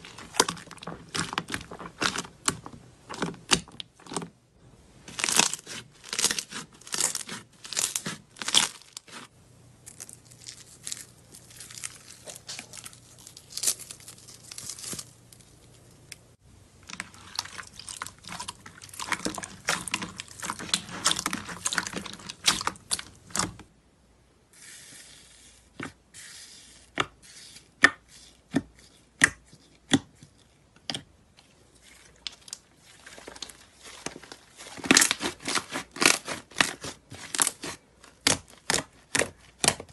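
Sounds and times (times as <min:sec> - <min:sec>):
sticky slime crunching: 0:00.0 - 0:04.3, 0:05.0 - 0:23.7, 0:26.9 - 0:39.9
slime crackling and popping: 0:33.3 - 0:39.9.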